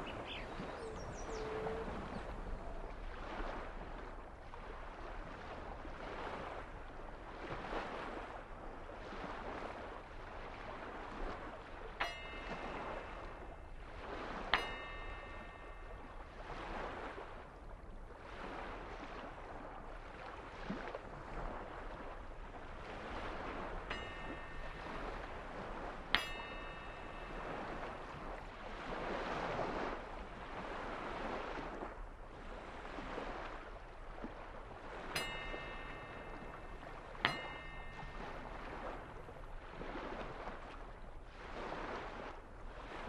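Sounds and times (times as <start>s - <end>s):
bright ringing ding: 12.0s - 17.0s, 23.9s - 28.5s, 35.0s - 40.0s.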